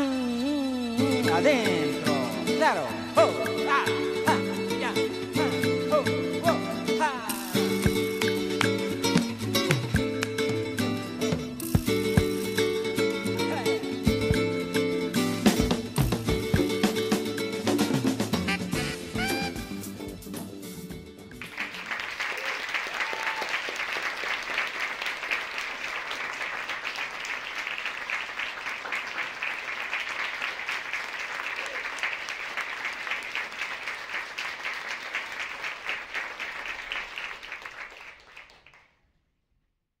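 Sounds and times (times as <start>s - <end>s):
audience applauding: 21.3s - 38.9s.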